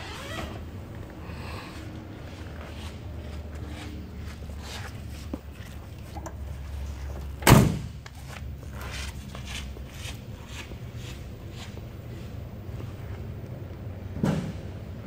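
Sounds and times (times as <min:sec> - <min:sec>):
steady low hum: 0:00.0 - 0:15.0
car door slamming: 0:07.4 - 0:08.0.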